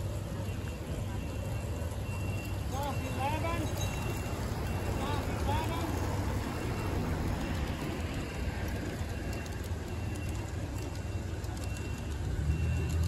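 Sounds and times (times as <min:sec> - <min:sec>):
model train wheels rumbling: 0:00.0 - 0:13.0.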